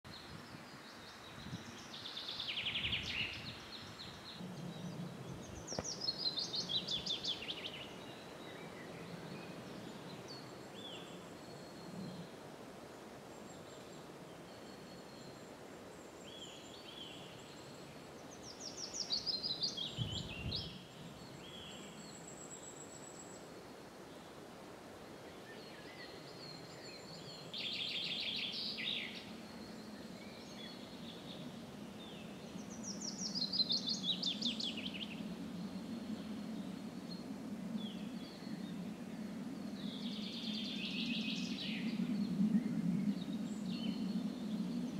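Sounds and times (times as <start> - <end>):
songbirds singing: 0.0 - 44.9
faint background noise: 0.1 - 44.9.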